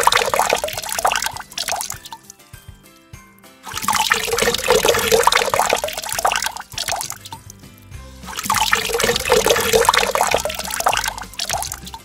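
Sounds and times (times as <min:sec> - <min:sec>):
water pouring over ice cubes: 0:00.0 - 0:02.3, 0:03.7 - 0:07.5, 0:08.2 - 0:12.0.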